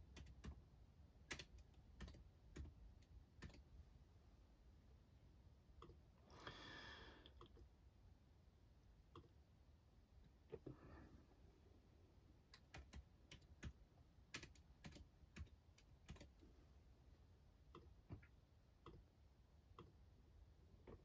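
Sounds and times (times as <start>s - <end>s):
typing on keyboard: 0.0s - 0.6s, 1.2s - 3.7s, 12.5s - 16.4s.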